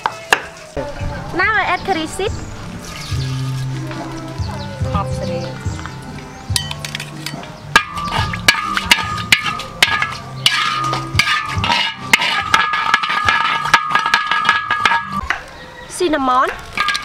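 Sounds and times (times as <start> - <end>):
metal spatula scraping a wok: 6.7 - 15.2.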